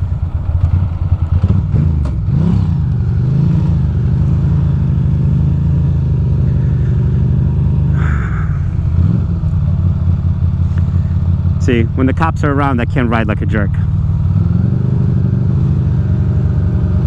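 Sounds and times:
motorcycle engine at low revs: 0.0 - 17.0.

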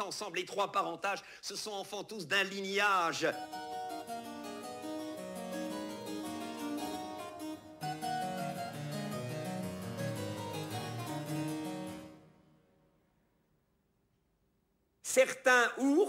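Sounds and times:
harpsichord music: 3.1 - 12.7.

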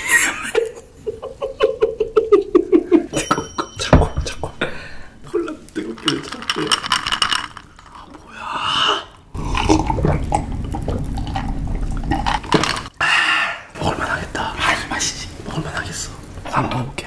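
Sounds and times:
glass and ice clicking: 5.4 - 8.2, 9.3 - 13.0
person gulping a drink: 5.4 - 13.0.

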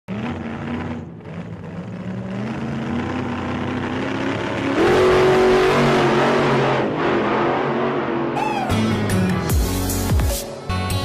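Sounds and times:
vehicle engine revving: 0.1 - 9.1.

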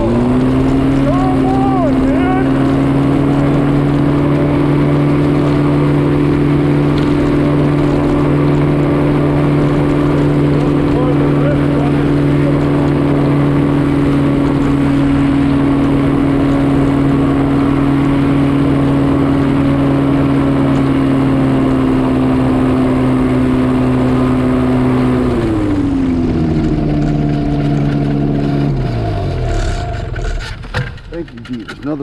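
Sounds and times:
propeller engine running: 0.0 - 32.0.

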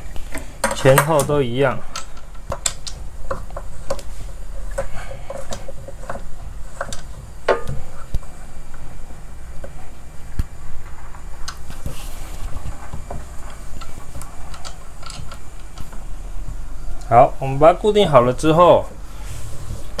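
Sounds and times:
metal clicks and knocks: 0.3 - 4.0.

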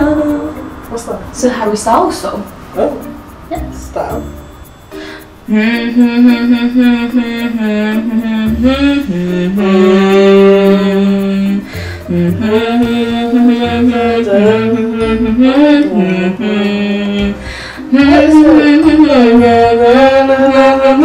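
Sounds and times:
bass line: 0.0 - 4.7, 5.5 - 21.0
person singing long sliding notes: 4.9 - 21.0.

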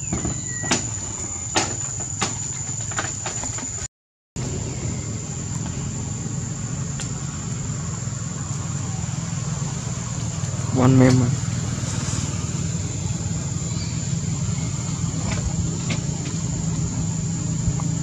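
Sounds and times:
low mechanical hum: 4.4 - 18.0.

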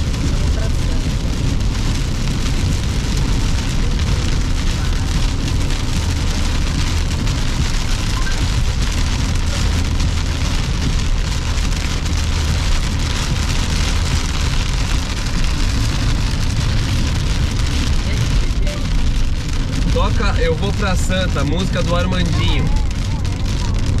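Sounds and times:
heavy rain on car roof: 0.0 - 24.0
low rumble: 0.0 - 24.0
tyres hissing on wet road: 0.0 - 24.0.

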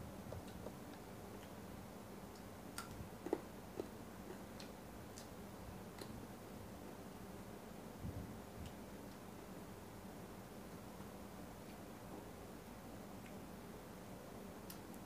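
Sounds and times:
low room hum: 0.0 - 15.0
person chewing with mouth: 2.8 - 5.3.

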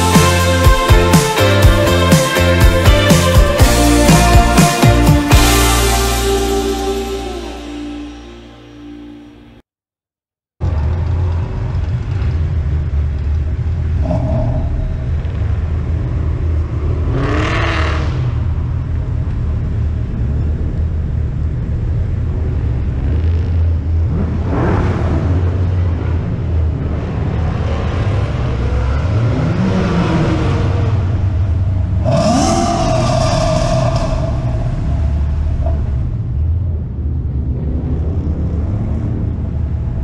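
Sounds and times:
car engines revving: 10.6 - 40.0
car engines rumbling: 10.6 - 40.0.

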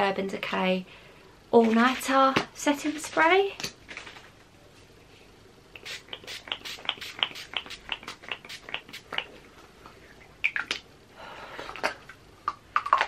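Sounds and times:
pump spray bottle spritzing: 5.8 - 9.3.

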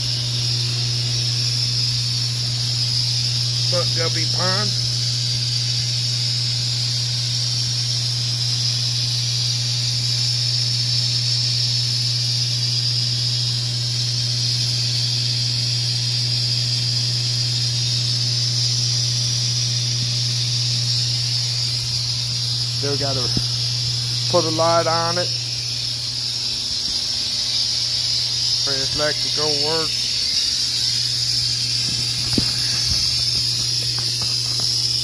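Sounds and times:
aquarium air pump humming: 0.0 - 35.0
air hissing: 2.7 - 5.6, 19.5 - 35.0.

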